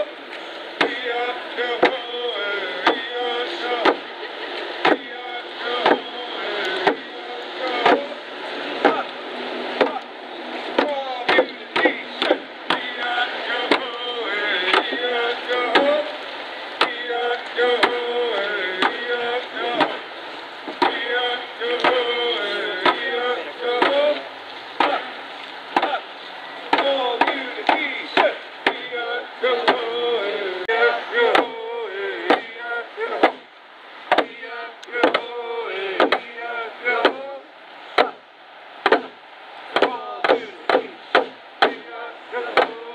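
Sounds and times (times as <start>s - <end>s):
voices: 0.0s - 42.9s
wooden box drum beat: 1.8s - 2.1s, 2.8s - 3.2s, 3.8s - 4.1s, 4.8s - 5.1s, 5.8s - 6.2s, 6.8s - 7.1s, 7.8s - 8.2s, 10.8s - 13.0s, 13.6s - 14.0s, 16.8s - 17.0s, 17.8s - 18.1s, 18.8s - 20.0s, 20.7s - 21.1s, 21.8s - 22.2s, 22.8s - 23.1s, 26.7s - 28.9s, 32.2s - 32.5s, 34.1s - 34.4s, 35.0s - 35.3s, 36.0s - 36.3s, 42.5s - 42.8s.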